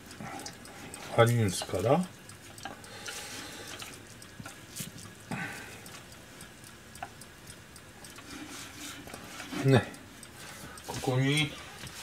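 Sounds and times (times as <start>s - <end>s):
chopsticks clicking against pan: 8.1s - 12.0s.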